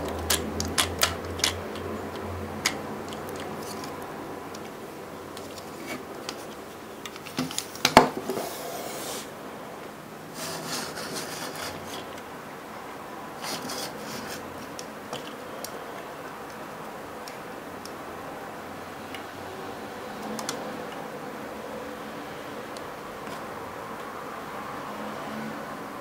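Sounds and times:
plastic pieces clicking: 0.0 - 4.7
wheels scraping on wood: 10.3 - 12.1, 13.4 - 14.5.

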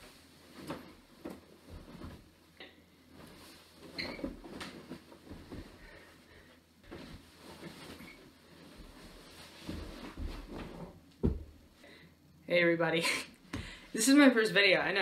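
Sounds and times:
bedding rustling: 0.0 - 11.8
body thumping onto bed: 9.6 - 11.6.

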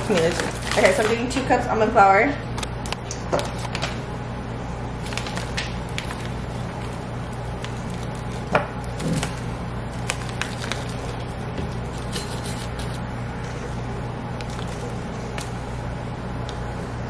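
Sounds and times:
plastic bag rustling: 0.0 - 1.4, 5.0 - 13.6
steady low hum: 0.0 - 17.0.

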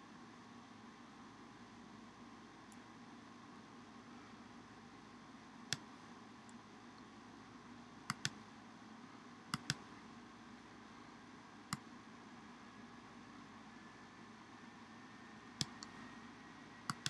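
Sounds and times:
faint steady hum: 0.0 - 17.0
computer mouse clicks: 5.7 - 5.9, 8.1 - 8.4, 9.5 - 9.9, 15.6 - 16.0.

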